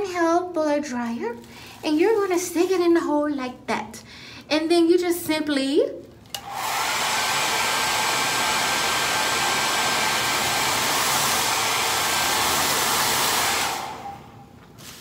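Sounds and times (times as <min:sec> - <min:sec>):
blow dryer running: 0:06.3 - 0:15.0.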